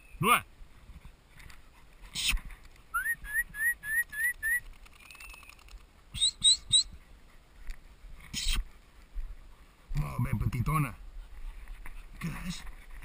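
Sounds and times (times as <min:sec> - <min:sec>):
person whistling rising notes: 0:03.0 - 0:04.6
brief rustle: 0:04.6 - 0:05.9.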